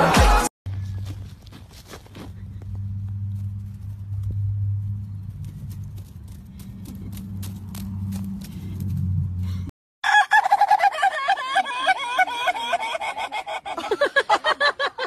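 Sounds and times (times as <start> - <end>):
low hum with faint ticks: 2.2 - 9.0
rooster crowing: 10.0 - 12.9.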